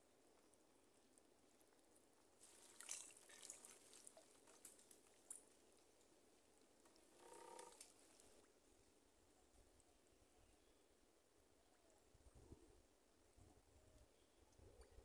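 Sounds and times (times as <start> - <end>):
water trickling and dripping: 1.1 - 8.5.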